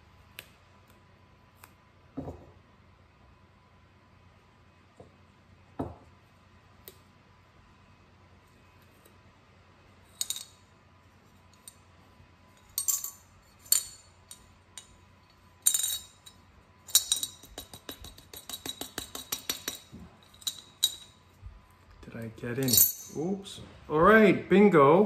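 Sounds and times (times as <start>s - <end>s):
coins clinking in ceramic bank: 12.6s - 14.8s, 15.4s - 21.2s, 22.6s - 23.3s.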